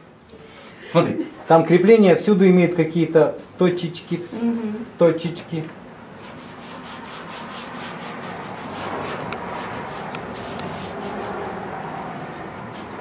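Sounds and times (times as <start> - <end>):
paintbrush scraping on canvas: 6.2 - 11.7.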